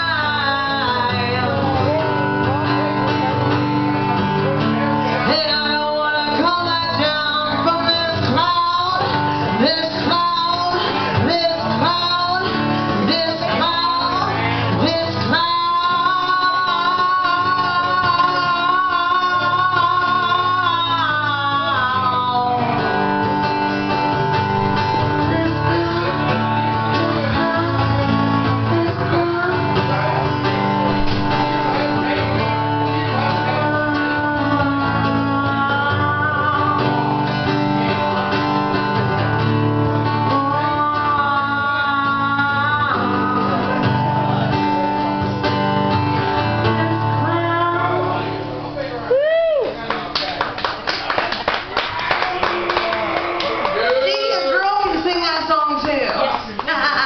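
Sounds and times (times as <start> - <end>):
live band playing: 0.0 - 49.8
bending guitar lead line: 0.0 - 57.0.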